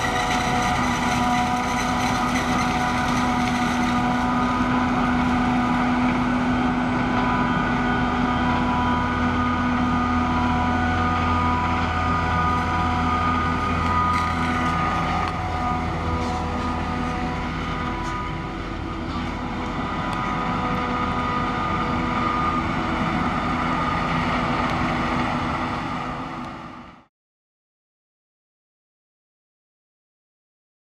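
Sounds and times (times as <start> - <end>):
harvester and tractor engine drone: 0.0 - 27.1.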